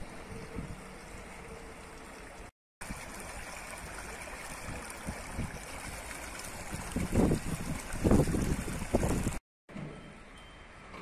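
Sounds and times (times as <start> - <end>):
water gushing from manhole: 0.0 - 9.4.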